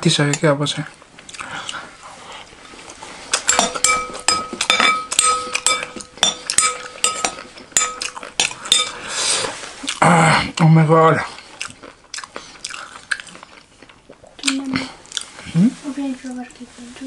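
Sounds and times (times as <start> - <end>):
spoon clinking on glass bowl: 3.4 - 9.0
glass bowl ringing: 3.5 - 9.0.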